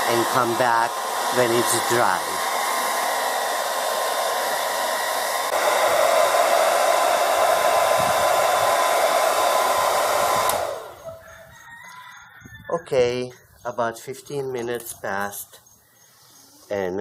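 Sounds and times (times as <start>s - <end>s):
hair dryer running: 0.0s - 11.2s.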